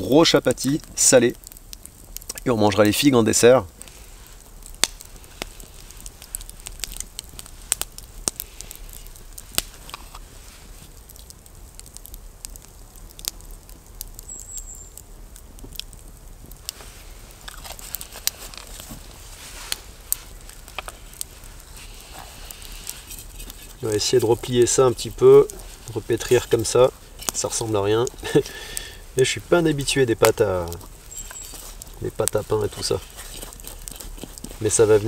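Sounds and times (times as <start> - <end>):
campfire crackling and popping: 0.0 - 35.0
food being handled: 16.7 - 28.5, 30.6 - 35.0.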